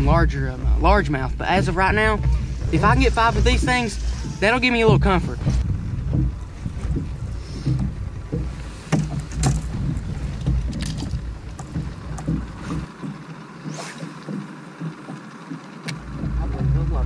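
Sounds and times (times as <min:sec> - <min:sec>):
wind rumbling on microphone: 0:00.0 - 0:15.2, 0:15.8 - 0:17.0
water lapping against boat hull: 0:00.0 - 0:17.0
sharp clicks and knocks: 0:03.6 - 0:16.9.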